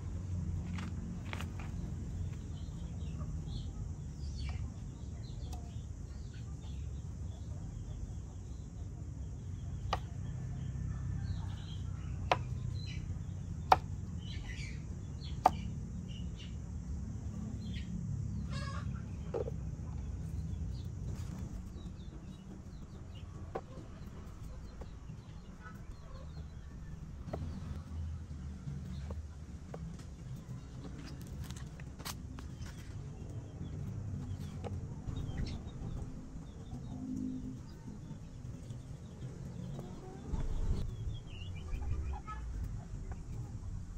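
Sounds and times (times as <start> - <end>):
bird calls: 17.4 - 43.7.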